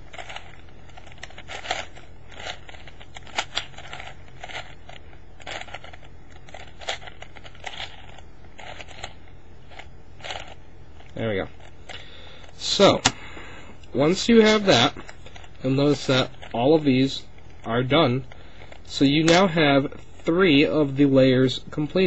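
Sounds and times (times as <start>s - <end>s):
puzzle cube clicking and clacking: 0.0s - 13.2s, 17.6s - 19.7s
low steady hum: 0.0s - 22.0s.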